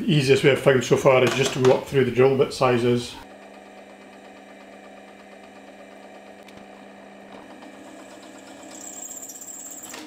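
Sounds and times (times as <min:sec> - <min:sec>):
drill press motor humming: 0:03.2 - 0:10.0
drill bit squealing on steel: 0:08.7 - 0:10.0.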